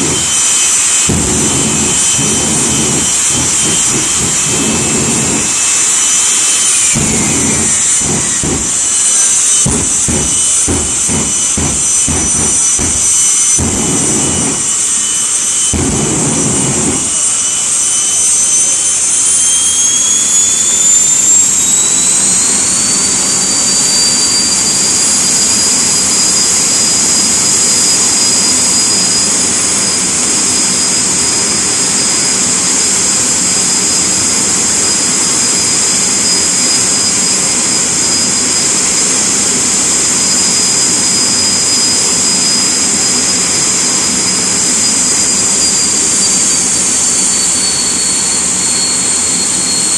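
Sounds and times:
jet engines whining: 0.0s - 49.9s
low rumbling pulses: 1.1s - 5.8s, 6.5s - 14.9s, 15.6s - 17.2s.

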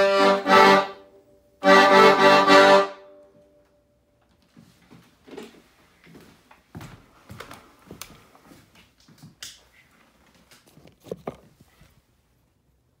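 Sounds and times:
footsteps on wooden floor: 4.5s - 9.4s.

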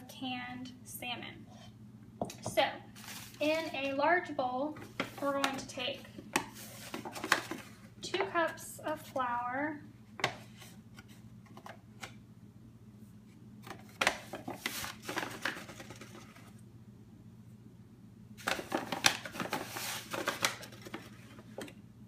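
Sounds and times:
paper bag rustling and scraping: 3.0s - 3.9s, 14.3s - 16.5s, 18.6s - 21.5s.

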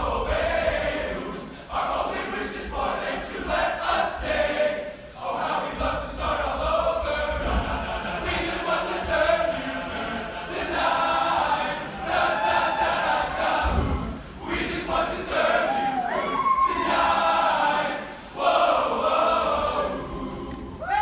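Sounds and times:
male choir singing: 0.0s - 20.9s
low thuds: 13.4s - 14.3s.

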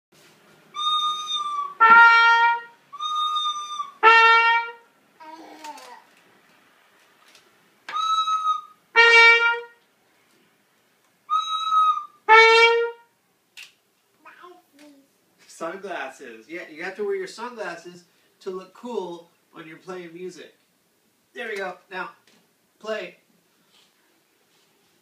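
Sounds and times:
trumpet two-note figure: 1.8s - 2.8s, 4.0s - 4.8s, 9.0s - 9.8s, 12.3s - 13.0s.

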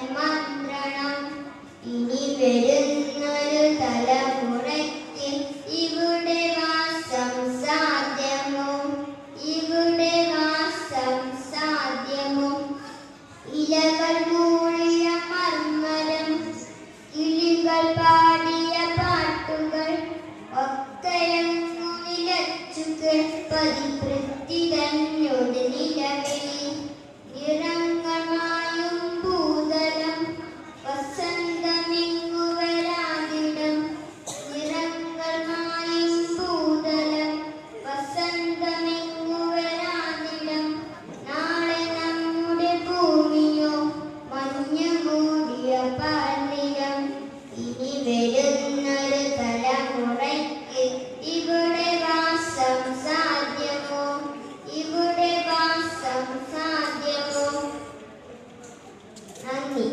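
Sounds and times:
boy singing into a microphone: 9.4s - 25.1s.

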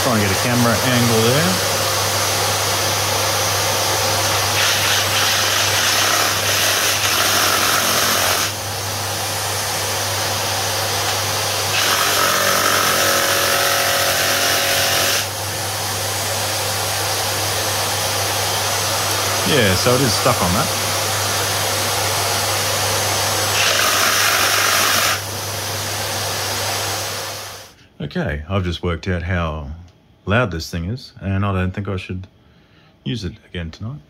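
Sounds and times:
motor hum: 0.0s - 27.7s
reciprocating saw cutting wood: 4.1s - 8.6s, 11.0s - 15.3s, 23.4s - 25.3s.

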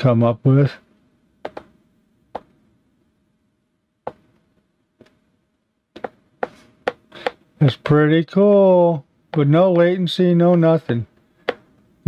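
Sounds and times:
stylus tapping on glass screen: 1.4s - 2.6s, 4.0s - 4.4s, 5.9s - 8.0s, 11.4s - 11.8s.

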